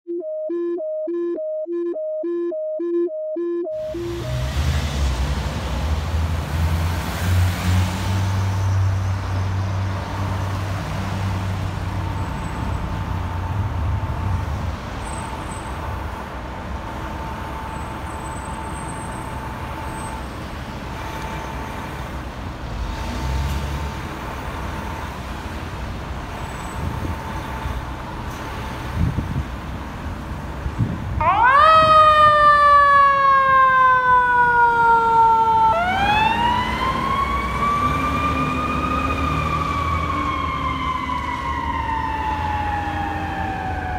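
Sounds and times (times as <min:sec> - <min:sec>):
steady high tone: 0:00.1 - 0:04.9
traffic rumble: 0:03.8 - 0:43.9.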